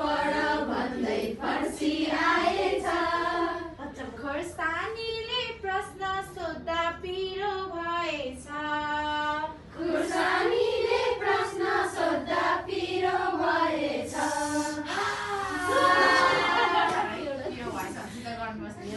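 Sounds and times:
group of women singing: 0.0s - 4.0s, 9.1s - 18.0s.

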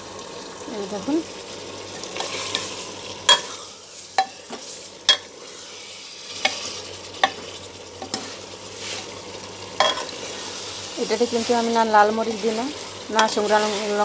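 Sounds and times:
curry sizzling: 0.0s - 14.0s
metal spatula scraping a pot: 9.8s - 11.6s.

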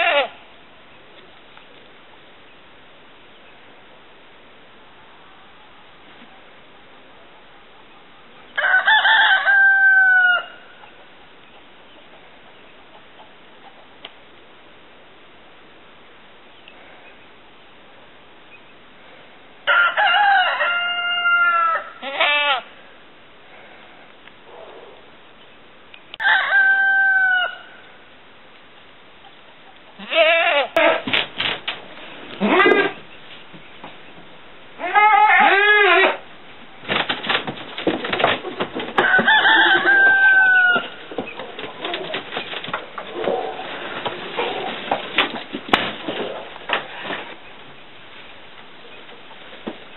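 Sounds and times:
faint outdoor hiss: 0.0s - 49.9s
rooster crowing: 8.6s - 10.7s, 19.6s - 22.0s, 26.2s - 27.8s, 39.0s - 41.0s
knocks and rustling: 30.8s - 34.4s, 36.8s - 47.7s, 48.6s - 49.9s.

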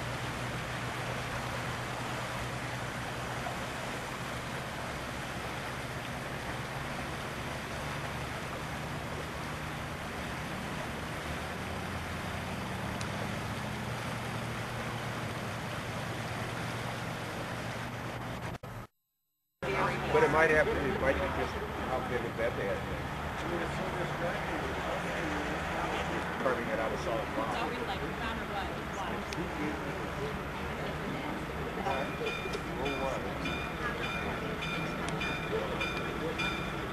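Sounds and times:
steam train rushing noise: 31.8s - 36.9s.

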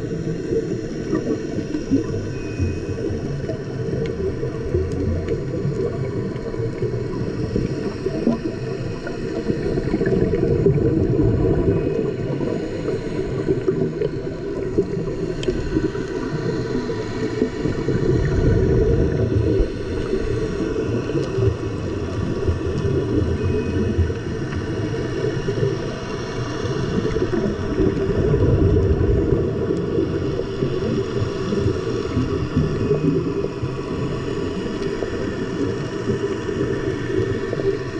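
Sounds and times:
faint steady hum: 0.0s - 37.9s
muffled underwater rumble: 0.0s - 37.9s.

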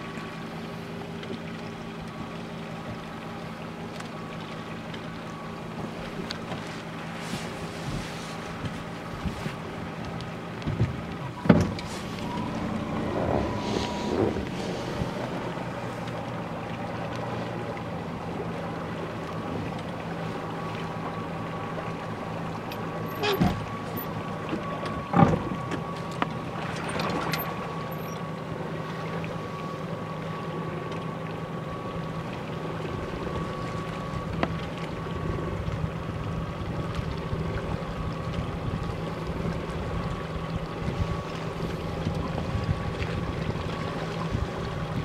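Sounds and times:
boat engine humming: 0.0s - 45.0s
wind noise on microphone: 42.0s - 43.6s.

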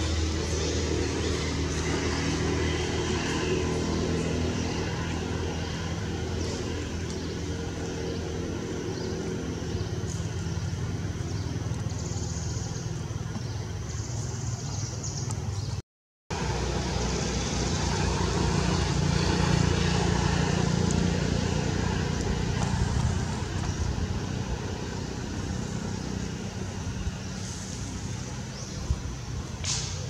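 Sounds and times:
motor engine humming: 16.3s - 30.0s.

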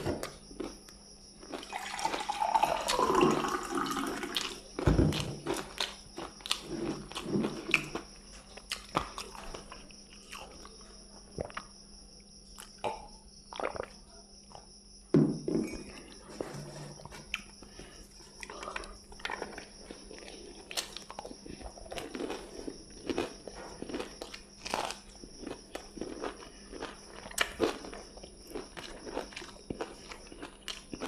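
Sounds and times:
biting and chewing: 18.4s - 31.0s.

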